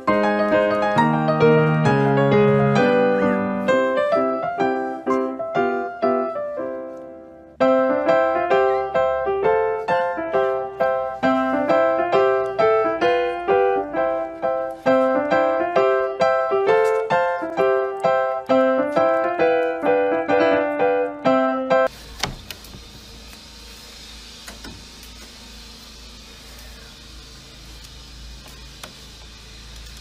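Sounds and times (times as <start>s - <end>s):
piano melody: 0.0s - 21.9s.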